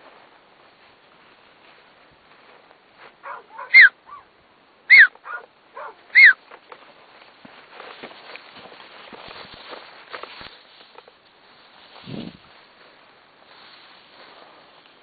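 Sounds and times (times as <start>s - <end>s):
dog yelping: 3.2s - 4.3s, 4.9s - 6.4s
dog whining: 3.3s - 4.2s, 4.9s - 6.4s.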